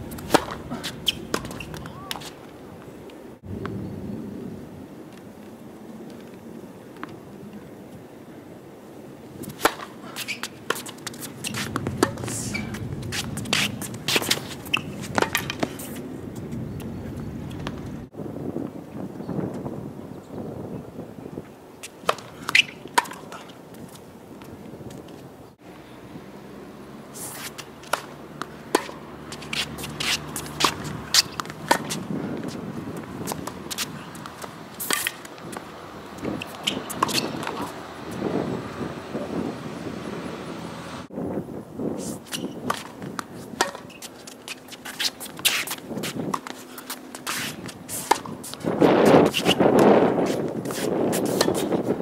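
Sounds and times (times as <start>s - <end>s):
shoes scuffing on court: 0.0s - 3.3s, 9.4s - 18.0s, 27.1s - 38.5s, 42.0s - 52.0s
ball hitting racket strings: 0.1s - 2.4s, 9.6s - 16.0s, 27.5s - 37.8s, 42.4s - 49.6s.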